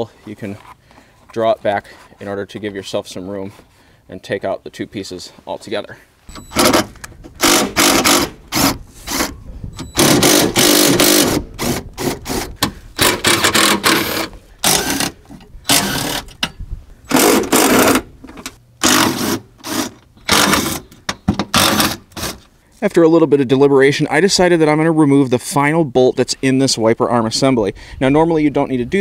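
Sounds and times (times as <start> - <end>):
cordless power driver bursts: 6.3 - 16.5, 17.1 - 18.1, 18.8 - 22.4.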